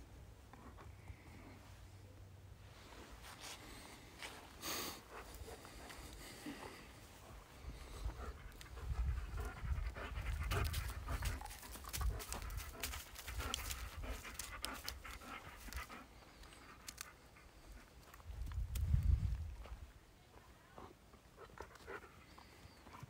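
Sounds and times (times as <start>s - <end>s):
dog panting: 4.7s - 18.2s, 21.3s - 23.0s.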